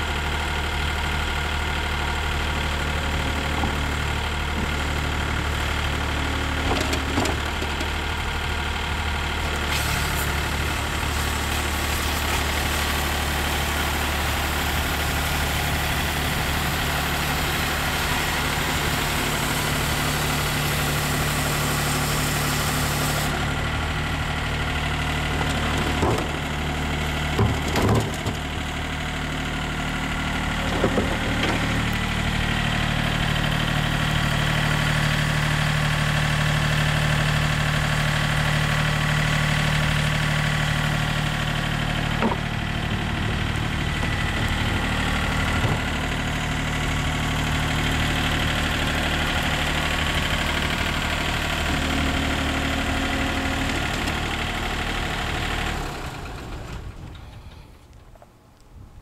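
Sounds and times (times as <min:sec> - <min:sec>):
engine idling: 0:00.0 - 0:58.3
wash spray hissing: 0:09.7 - 0:13.9.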